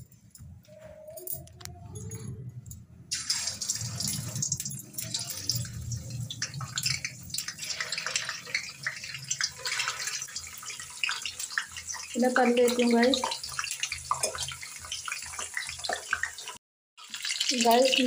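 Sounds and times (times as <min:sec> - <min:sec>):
food frying in hot oil: 0:03.1 - 0:18.0.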